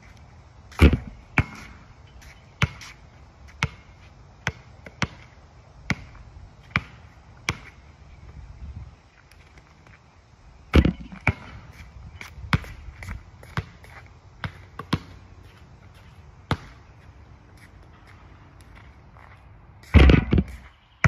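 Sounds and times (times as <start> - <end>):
basketball bouncing on asphalt: 0.7 - 7.9, 10.7 - 21.0.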